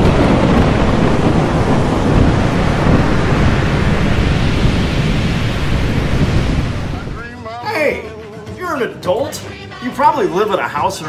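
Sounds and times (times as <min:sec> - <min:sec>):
thunder: 0:00.0 - 0:07.2
ocean waves crashing: 0:00.0 - 0:11.0.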